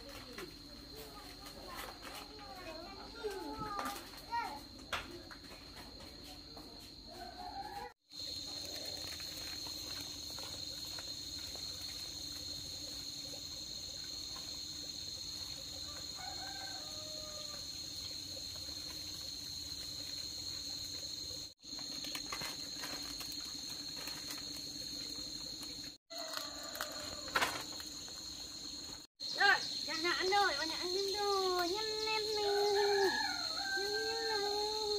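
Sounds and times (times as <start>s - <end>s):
high-pitched insect drone: 8.2s - 34.9s.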